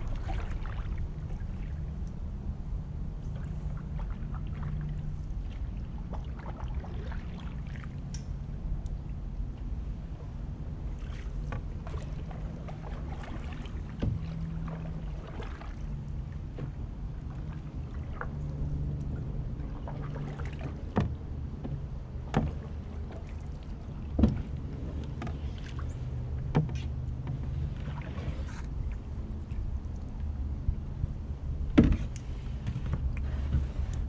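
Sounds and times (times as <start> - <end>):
paddle strokes in water: 0.0 - 34.0
steady low rumble: 0.0 - 34.0
sharp knocks on canoe: 11.4 - 15.7, 19.9 - 23.4, 24.1 - 28.5, 31.7 - 33.8.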